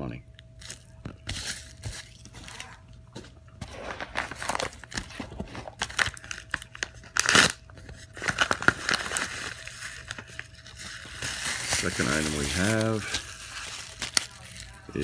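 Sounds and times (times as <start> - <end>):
plastic packaging crinkling: 3.6 - 15.0.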